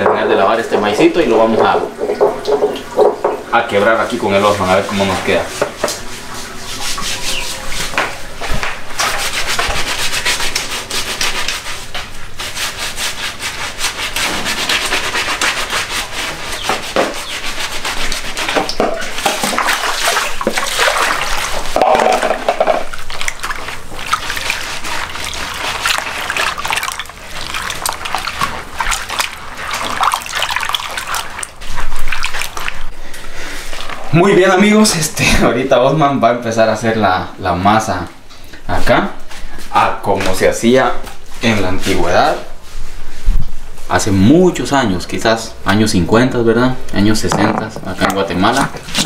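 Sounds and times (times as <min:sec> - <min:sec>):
water splashing: 0:00.0 - 0:34.8, 0:47.0 - 0:49.0
hands rubbing corn in water: 0:00.0 - 0:35.6, 0:43.8 - 0:49.0.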